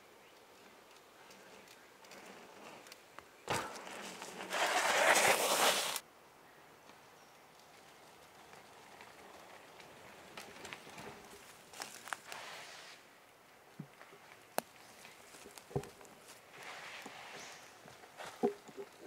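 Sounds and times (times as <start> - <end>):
faint clicks and crackles: 0.3 - 4.5, 6.8 - 12.4
bike tyres crunching over dirt: 0.3 - 6.0, 6.8 - 13.1, 13.8 - 19.0.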